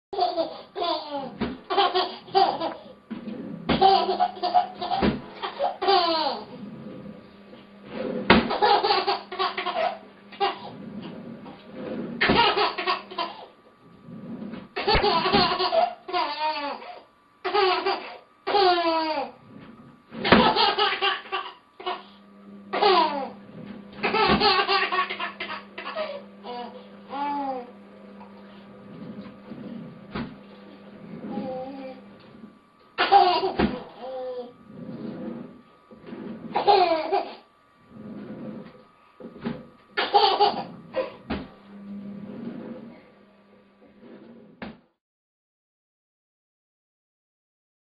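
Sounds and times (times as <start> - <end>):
baby laughing: 0.2 - 2.9, 3.7 - 6.6, 8.5 - 10.8, 12.2 - 13.5, 14.8 - 19.4, 20.2 - 22.1, 22.7 - 23.4, 24.0 - 27.7, 33.0 - 34.5, 36.5 - 37.4, 40.0 - 41.2.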